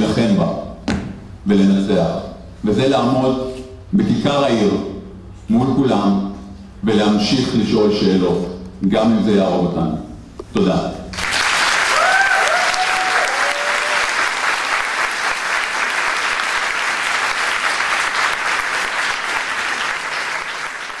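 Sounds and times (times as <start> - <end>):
audience applauding: 11.2 - 21.0
person whooping: 11.9 - 14.2.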